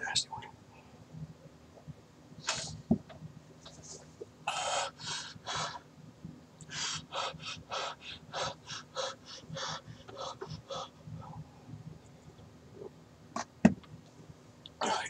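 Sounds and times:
man panting: 0:04.5 - 0:05.8, 0:06.7 - 0:11.6.

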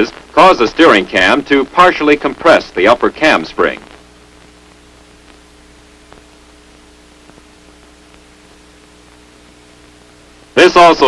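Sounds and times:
film soundtrack hiss: 0:00.0 - 0:11.0
low electrical hum: 0:00.0 - 0:11.0
faint clicks: 0:06.1 - 0:06.3.

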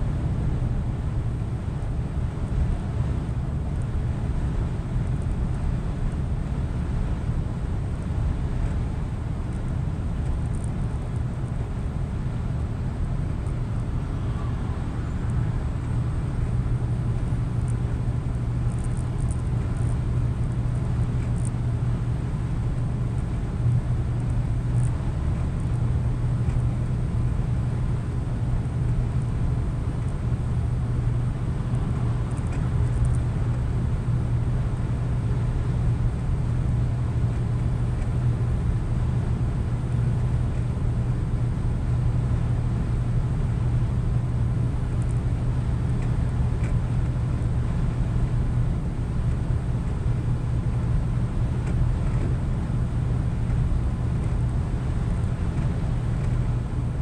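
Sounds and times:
tyre and road noise: 0:01.2 - 0:41.2
truck engine drone: 0:06.5 - 0:56.9.

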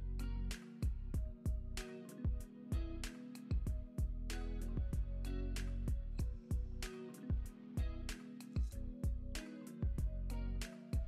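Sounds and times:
steady drum beat: 0:02.3 - 0:05.1, 0:05.7 - 0:10.1.

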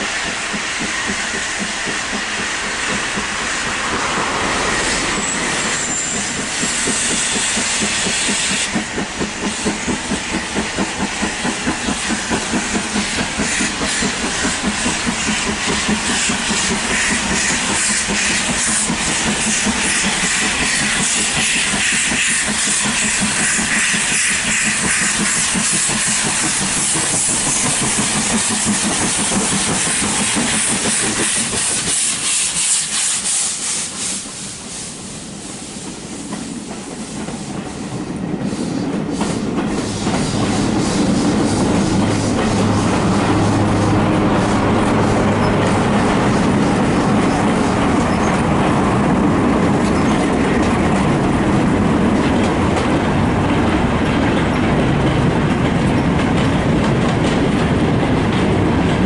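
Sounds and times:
steam hissing: 0:00.0 - 0:55.5
wheels clicking over rail joints: 0:35.8 - 0:59.0.

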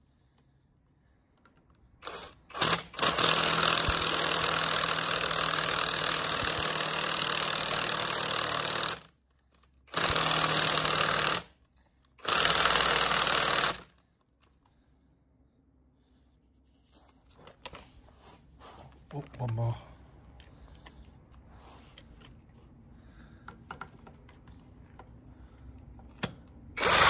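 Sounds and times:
cordless power driver spinning bolts: 0:09.9 - 0:11.5, 0:26.8 - 0:27.0.

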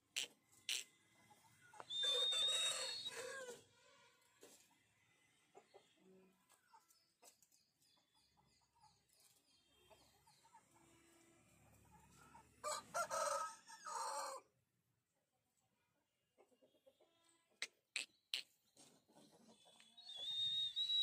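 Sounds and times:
rooster crowing: 0:01.9 - 0:03.6, 0:12.6 - 0:14.5.

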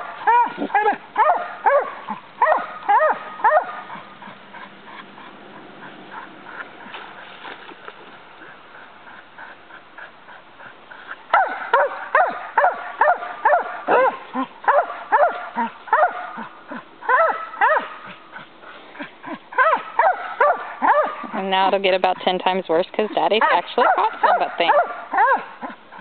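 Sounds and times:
dog whining: 0:00.2 - 0:01.8.

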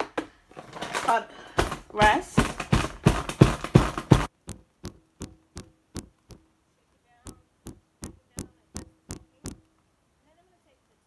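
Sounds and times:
bag of sugar knocking on counter: 0:01.6 - 0:06.5.

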